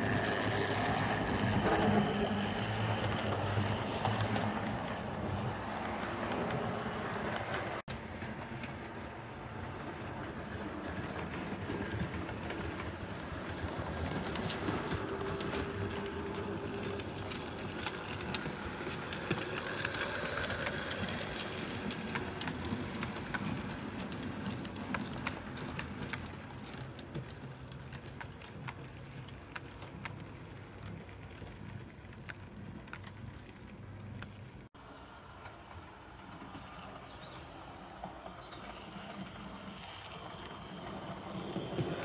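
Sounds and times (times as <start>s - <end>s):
model train rolling rumble: 0.0s - 42.0s
wheels clicking over rail joints: 0.0s - 42.0s.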